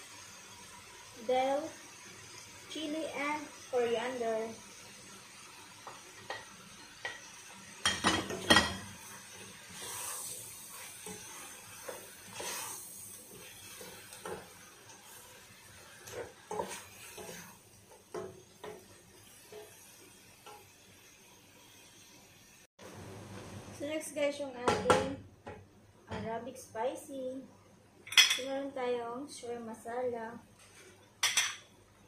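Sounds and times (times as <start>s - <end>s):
soft sizzle: 0.0s - 32.0s
wooden spoon scraping pot: 9.7s - 14.5s, 15.9s - 17.6s.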